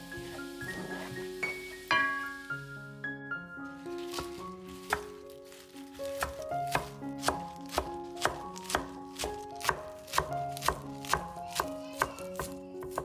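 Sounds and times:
soft background music: 0:00.0 - 0:13.0
knife chopping on cutting board: 0:04.0 - 0:05.1, 0:06.1 - 0:13.0.

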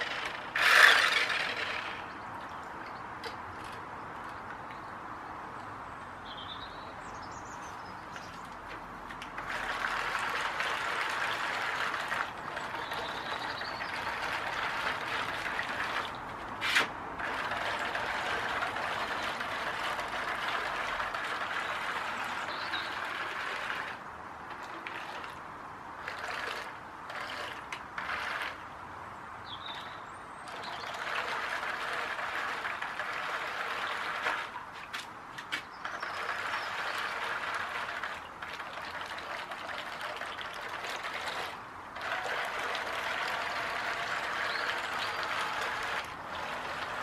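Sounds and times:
small electric motors running: 0:00.0 - 0:02.2, 0:09.4 - 0:16.2, 0:17.2 - 0:24.0, 0:26.0 - 0:28.6, 0:30.5 - 0:34.6, 0:35.8 - 0:47.0.

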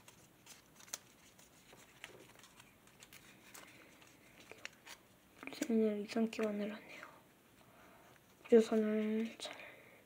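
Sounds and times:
paper crinkling and folding: 0:00.0 - 0:06.6.

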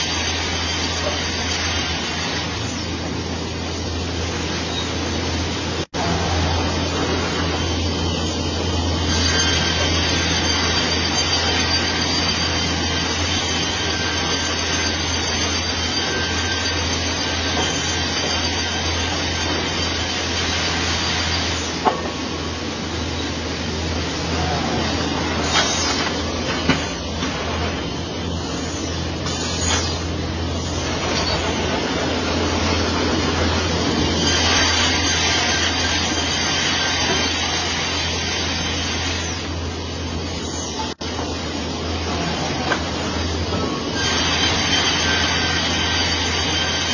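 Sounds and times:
low machine hum: 0:00.0 - 0:36.5.

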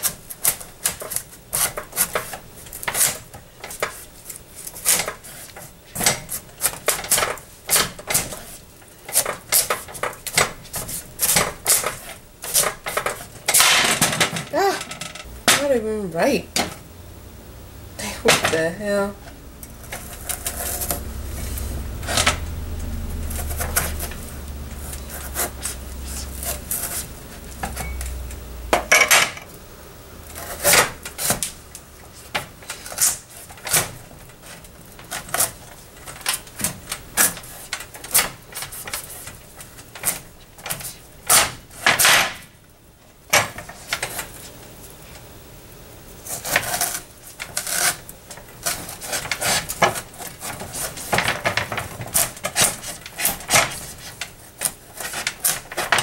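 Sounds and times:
knife rasping through squash: 0:00.0 - 0:05.7, 0:23.2 - 0:27.6, 0:48.6 - 0:51.2.

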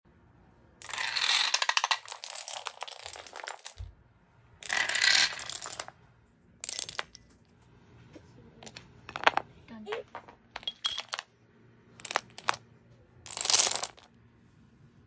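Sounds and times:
dominoes toppling: 0:00.8 - 0:03.9, 0:04.6 - 0:05.9, 0:06.6 - 0:07.1, 0:13.3 - 0:14.1.

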